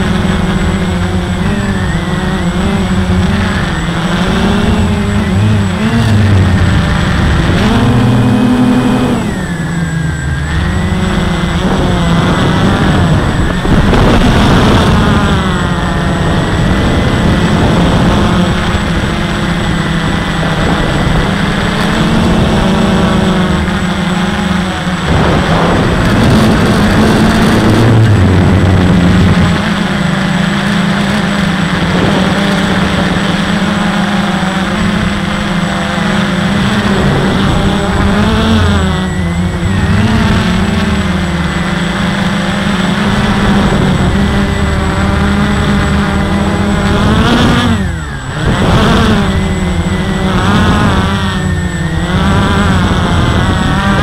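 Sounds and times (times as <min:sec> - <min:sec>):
quadcopter motors whining: 0:00.0 - 0:54.0.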